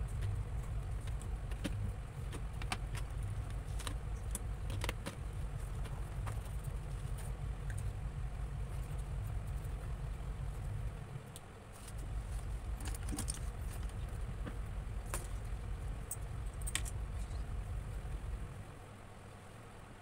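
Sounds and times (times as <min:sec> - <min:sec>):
light clicks and taps: 0:00.0 - 0:08.0
low background rumble: 0:00.0 - 0:20.0.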